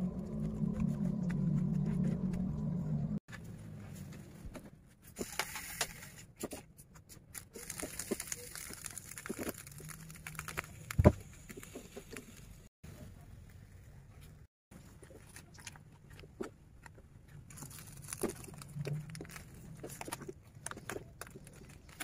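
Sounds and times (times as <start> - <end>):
leaves rustling and crinkling: 7.5 - 12.2, 17.5 - 22.0.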